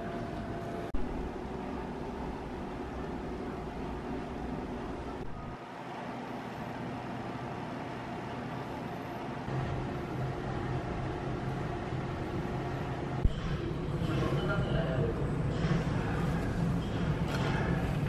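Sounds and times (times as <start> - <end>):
ventilation and machinery hum: 0.0 - 18.0.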